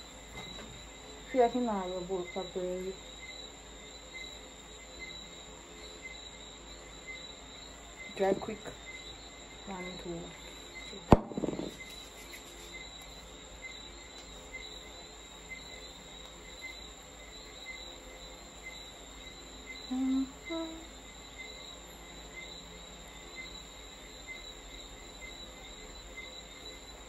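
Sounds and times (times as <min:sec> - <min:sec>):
crickets chirping: 0:00.0 - 0:27.0
person humming: 0:19.9 - 0:20.9.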